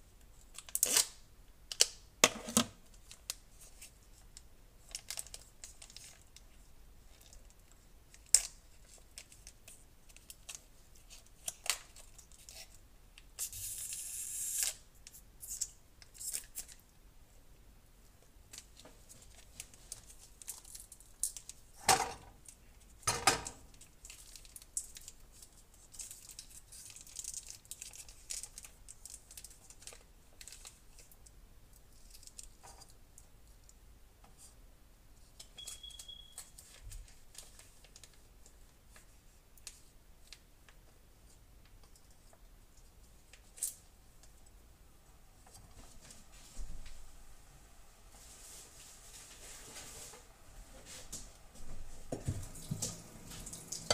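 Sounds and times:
plastic and foil crinkling: 0.5 - 2.0, 2.9 - 16.9, 18.5 - 21.8, 23.6 - 32.9, 35.4 - 40.4.

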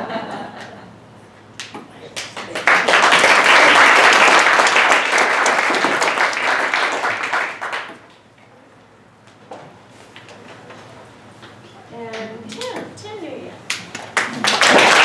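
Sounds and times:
audience applauding: 2.2 - 8.0, 14.0 - 15.0.

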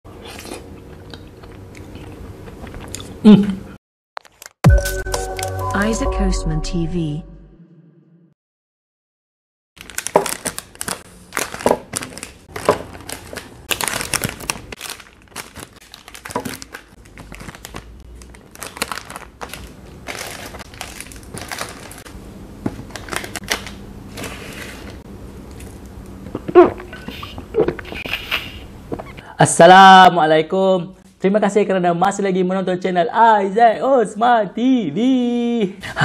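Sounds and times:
plastic wrappers crinkling: 9.8 - 25.0.

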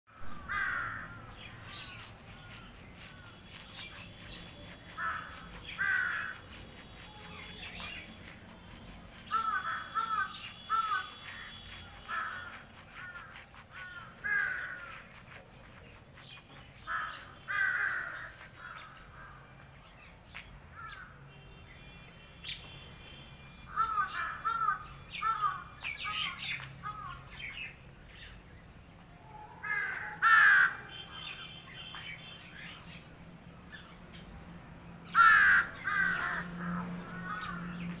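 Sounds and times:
crows cawing: 0.3 - 1.4, 4.9 - 6.5, 9.2 - 15.1, 16.9 - 19.5, 20.7 - 21.2, 23.7 - 25.6, 29.6 - 30.9, 35.1 - 37.8.

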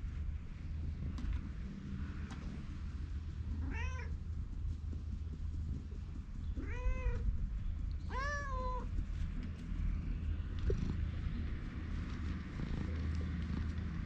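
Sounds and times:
cat meowing: 3.6 - 4.1, 6.6 - 7.3, 8.1 - 8.9.

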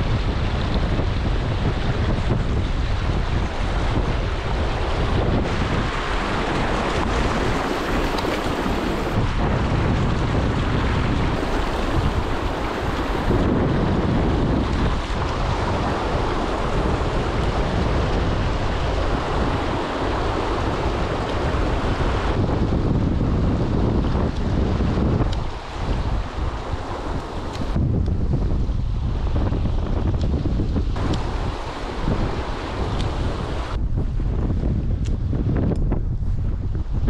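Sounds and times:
wind buffeting microphone: 0.0 - 37.0
river rapids rushing over stones: 4.5 - 9.2, 11.4 - 13.6, 31.0 - 33.8.

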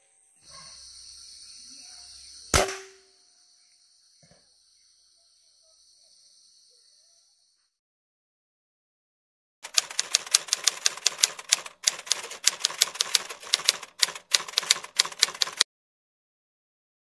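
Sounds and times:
typewriter key clacks: 9.7 - 15.6.

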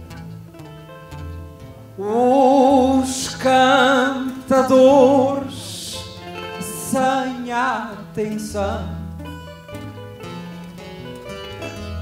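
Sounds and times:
plucked guitars and bass: 0.0 - 12.0
man singing with vibrato: 2.0 - 9.1.

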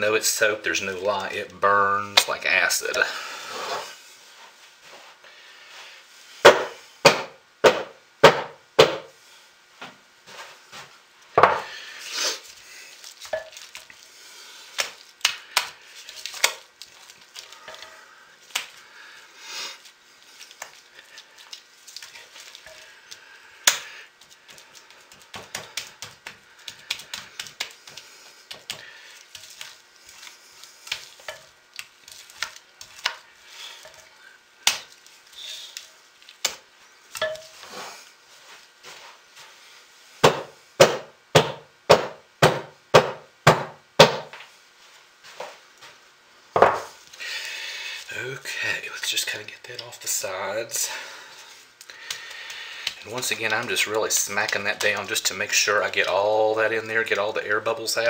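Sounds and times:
spatula scraping: 2.6 - 4.0, 11.6 - 39.2, 50.3 - 58.0.

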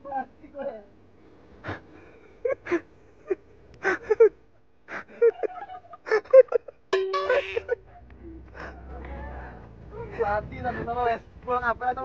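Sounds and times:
steady tone: 7.0 - 7.9.

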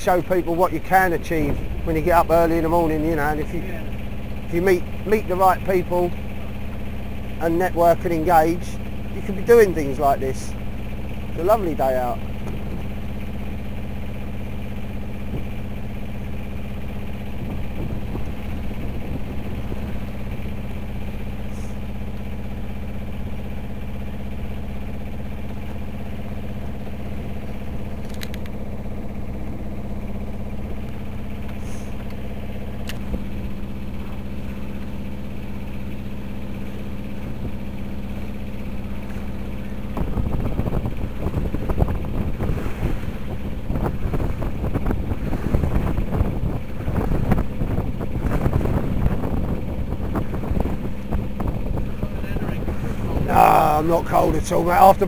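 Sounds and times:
boat engine droning: 0.0 - 55.0
wind buffeting microphone: 0.8 - 2.2, 12.4 - 13.1, 15.2 - 15.6, 16.8 - 21.2, 39.2 - 53.5.

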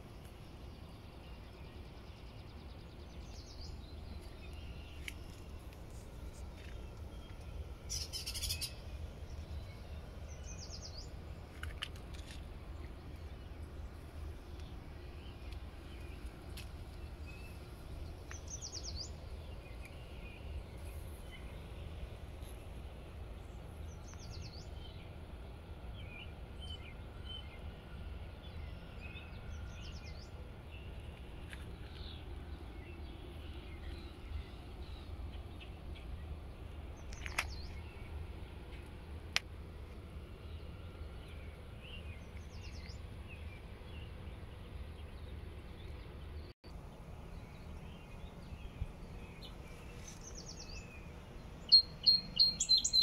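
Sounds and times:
low background rumble: 0.0 - 53.0
small birds chirping and trilling: 0.2 - 22.8, 47.0 - 53.0.

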